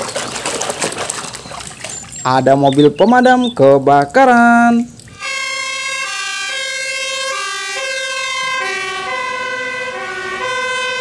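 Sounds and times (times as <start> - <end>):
fire engine two-tone siren: 5.2 - 11.0.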